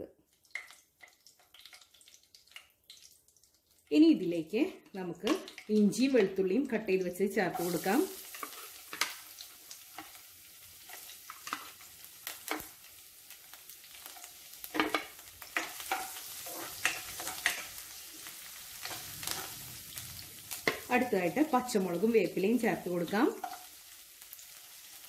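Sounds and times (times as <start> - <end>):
spices sizzling in hot oil: 0.0 - 25.0
spatula stirring in pan: 7.3 - 21.1, 23.3 - 25.0.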